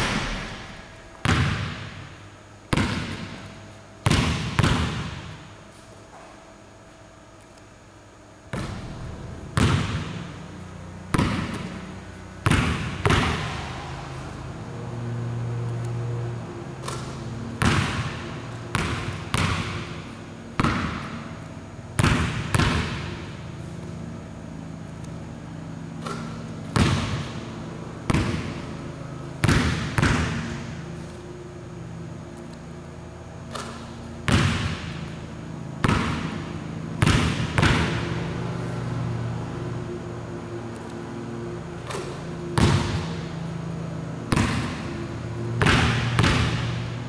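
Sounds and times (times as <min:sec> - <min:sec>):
basketball bouncing on wooden floor: 0:00.0 - 0:02.1, 0:02.7 - 0:03.4, 0:04.0 - 0:05.3, 0:08.5 - 0:10.4, 0:11.1 - 0:13.6, 0:16.8 - 0:20.0, 0:20.6 - 0:21.3, 0:22.0 - 0:23.3, 0:26.0 - 0:27.5, 0:28.1 - 0:28.8, 0:29.4 - 0:30.8, 0:33.5 - 0:35.1, 0:35.8 - 0:38.3, 0:41.9 - 0:43.3, 0:44.3 - 0:45.0, 0:45.6 - 0:46.9
low steady hum: 0:00.0 - 0:47.0.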